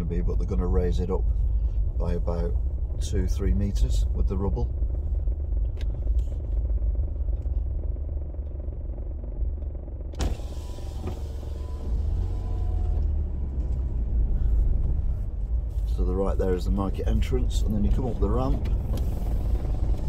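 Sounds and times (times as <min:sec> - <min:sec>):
engine and road rumble: 0:00.0 - 0:20.0.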